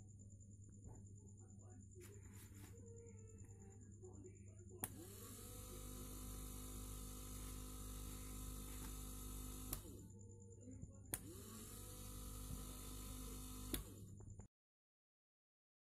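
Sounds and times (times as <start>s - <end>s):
small electric motor running: 4.8s - 10.1s, 11.2s - 14.1s
rocker switch clicking: 9.6s - 9.9s, 13.7s - 13.9s.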